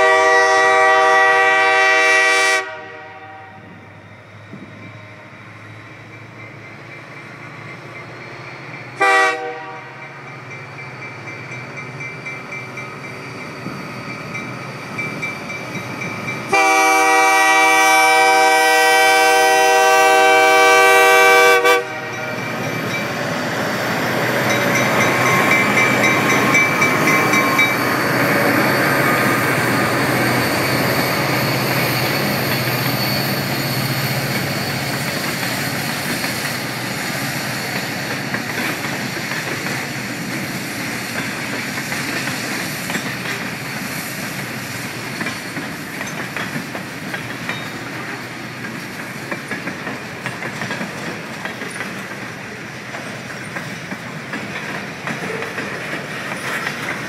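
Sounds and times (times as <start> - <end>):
locomotive engine passing: 0.0 - 57.0
train bell ringing: 3.6 - 9.0, 9.7 - 17.6, 22.0 - 40.4, 41.1 - 42.1, 44.4 - 57.0
train wheels clickety-clack: 3.6 - 57.0.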